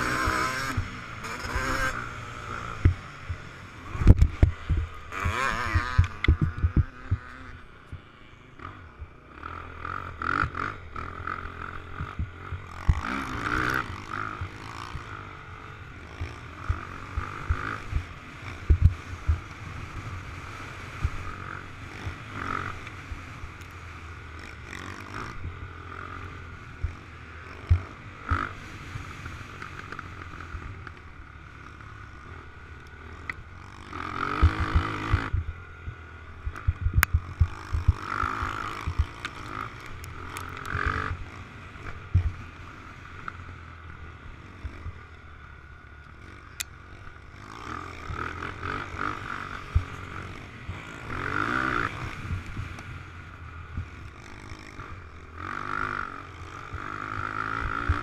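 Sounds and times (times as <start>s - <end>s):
off-road engine revving: 0.0s - 58.0s
low thumps over bumps: 2.8s - 7.4s, 18.7s - 19.4s, 34.4s - 39.4s.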